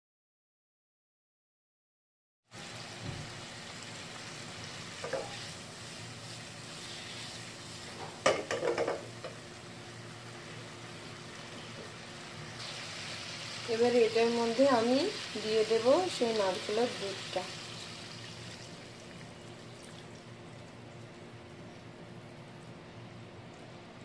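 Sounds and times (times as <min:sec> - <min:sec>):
curry paste sizzling in oil: 0:02.5 - 0:19.1.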